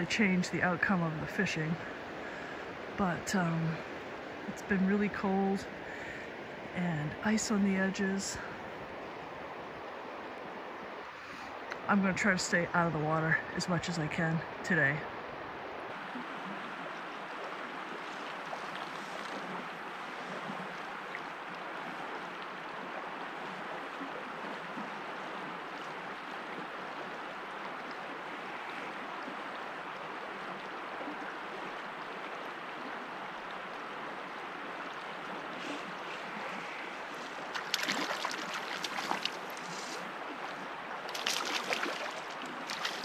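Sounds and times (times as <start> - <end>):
river water rushing: 0.0 - 43.0.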